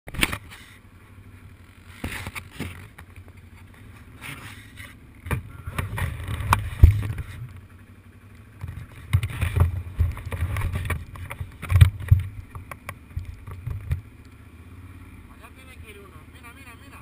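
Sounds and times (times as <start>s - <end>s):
sharp knocks of camera jostling: 5.2s - 7.6s, 8.6s - 14.1s.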